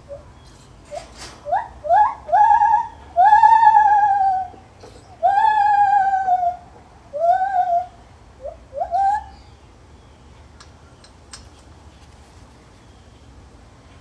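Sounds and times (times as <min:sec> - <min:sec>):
gibbon hooting calls: 0:01.4 - 0:09.4.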